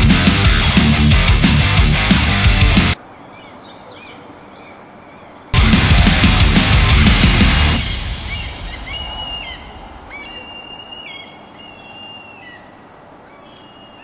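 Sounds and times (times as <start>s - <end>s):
loud rock music: 0.0s - 3.0s, 5.6s - 9.7s
bird whistled calls: 8.3s - 14.0s.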